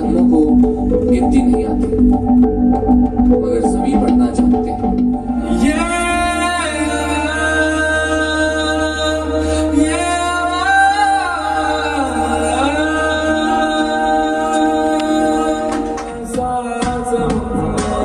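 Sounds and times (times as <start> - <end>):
electronic drone: 0.0 - 16.0
low bass tone: 0.0 - 18.0
man singing long held notes: 5.4 - 18.0.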